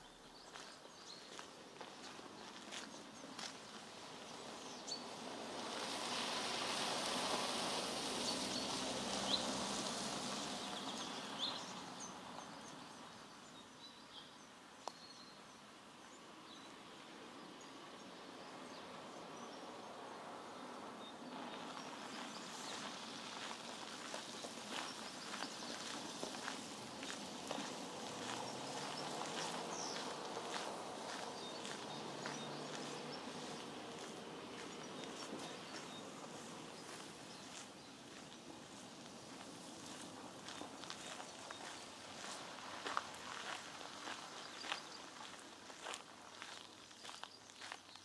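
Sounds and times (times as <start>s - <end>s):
footsteps on a path: 0.3s - 4.8s, 21.5s - 48.0s
broad rushing noise: 21.9s - 44.3s.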